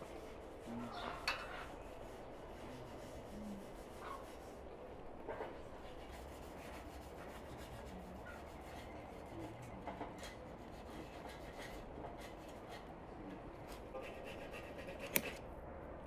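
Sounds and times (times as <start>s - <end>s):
paintbrush rubbing strokes: 0.0s - 4.7s, 5.5s - 9.6s.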